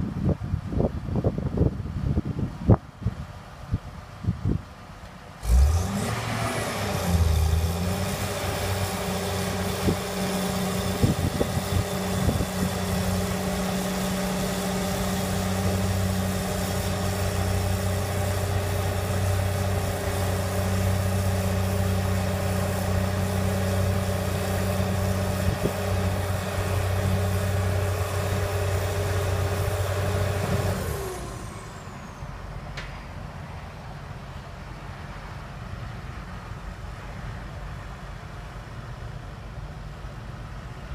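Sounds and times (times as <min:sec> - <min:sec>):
diesel engine revving: 0:05.4 - 0:32.7.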